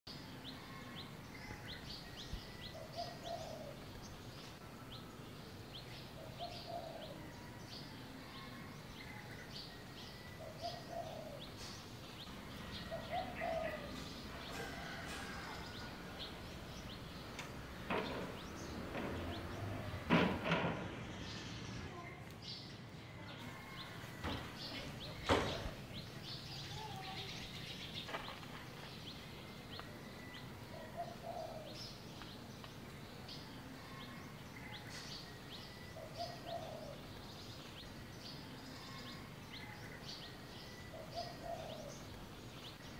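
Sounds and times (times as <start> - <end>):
birds chirping: 0.0 - 42.9
sharp knocks: 17.4 - 21.1.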